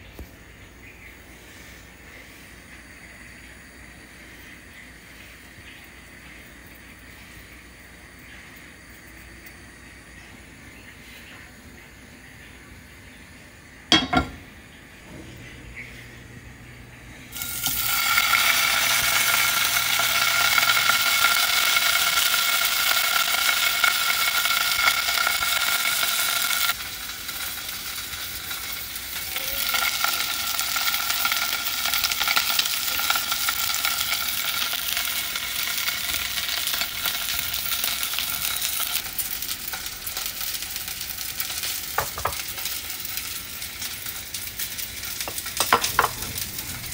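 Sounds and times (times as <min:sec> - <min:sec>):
steak sizzling in hot oil: 0:17.3 - 0:46.9.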